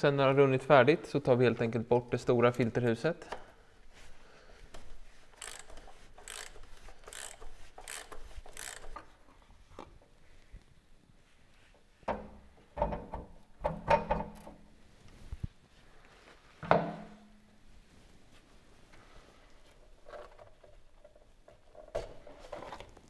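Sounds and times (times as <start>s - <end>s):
ratchet clicking: 5.4s - 9.1s.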